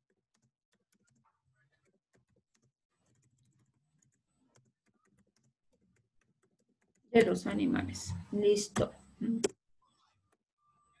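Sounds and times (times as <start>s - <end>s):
faint keyboard typing: 0.1s - 7.4s.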